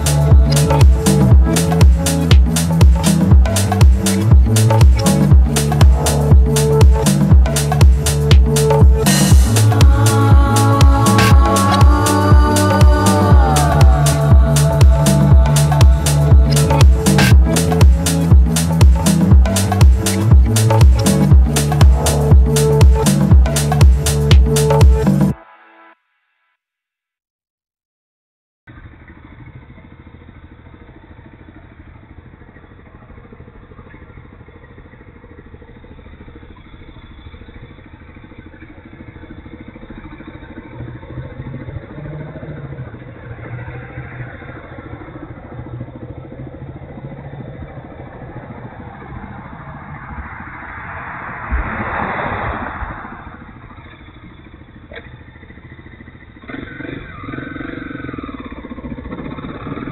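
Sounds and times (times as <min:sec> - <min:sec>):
loud rushing noise: 0:00.0 - 0:25.0, 0:48.2 - 0:54.2
motorcycle engine idling: 0:28.7 - 0:49.8, 0:53.6 - 0:59.9.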